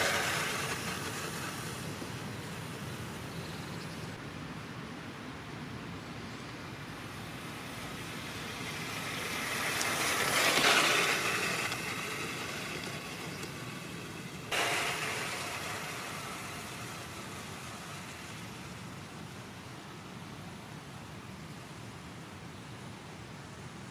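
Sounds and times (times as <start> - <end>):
toy truck motor whine: 0.0 - 2.9, 7.4 - 19.2.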